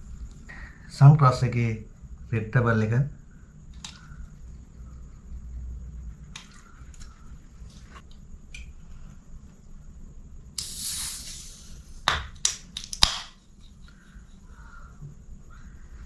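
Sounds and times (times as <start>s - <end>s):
hiss of escaping gas: 10.6s - 12.0s
sharp metallic clicks of tab: 12.1s - 13.4s.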